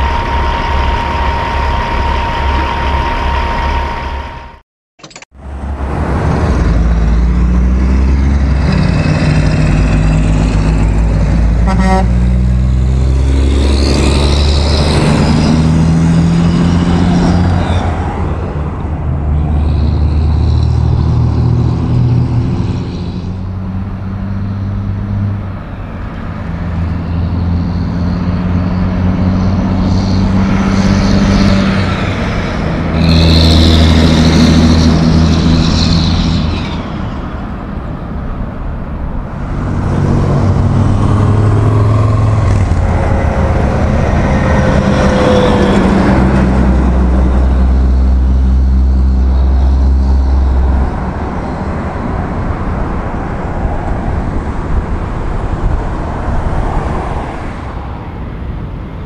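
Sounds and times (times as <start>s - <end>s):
heavy diesel truck engine: 0.0s - 59.0s
tyre and traffic noise: 0.0s - 59.0s.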